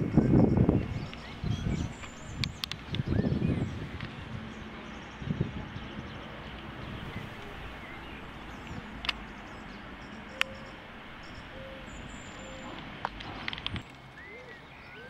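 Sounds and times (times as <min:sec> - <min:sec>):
bird chirps: 0:00.0 - 0:12.9, 0:13.8 - 0:15.0
sharp clicks: 0:02.0 - 0:03.2, 0:12.7 - 0:14.1.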